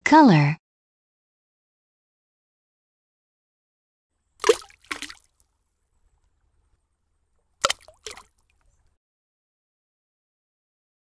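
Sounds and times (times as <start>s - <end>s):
cartoon liquid splash: 4.4s - 5.3s, 7.6s - 8.4s.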